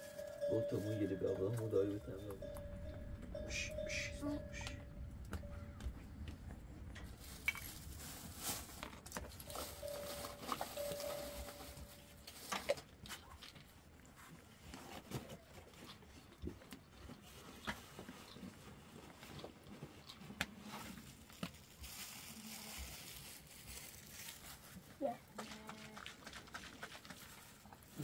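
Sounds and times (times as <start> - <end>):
faint held tone: 0.0 - 6.3, 9.5 - 12.3
plastic bag rustling: 0.0 - 13.7, 17.2 - 28.0.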